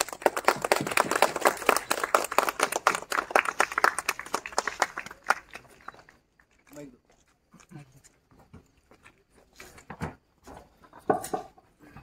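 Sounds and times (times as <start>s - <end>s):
people clapping: 0.0s - 6.8s.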